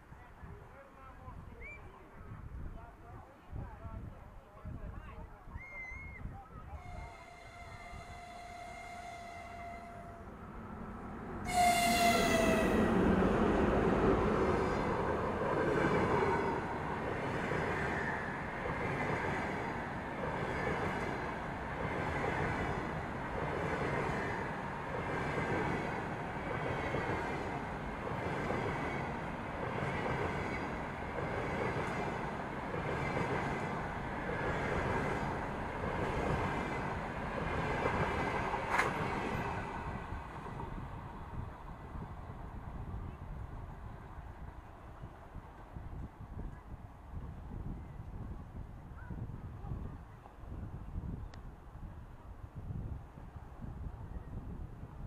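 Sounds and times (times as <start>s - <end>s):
electric locomotive horn: 6.7s - 10.4s, 11.4s - 13.1s
train wheels rumbling on rail: 6.8s - 43.1s.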